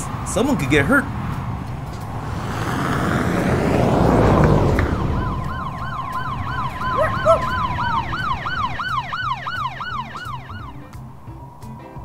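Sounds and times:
siren yelp: 3.9 - 10.9.

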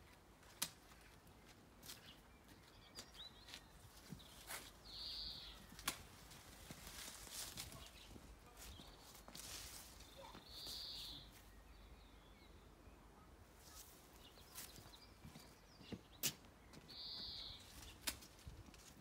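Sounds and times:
high bird notes: 10.1 - 11.3.

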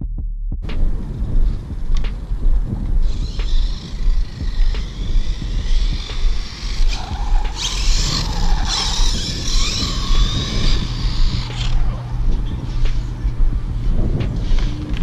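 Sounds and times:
steady low rumble: 0.0 - 15.0
electric motor whine: 3.0 - 13.4.

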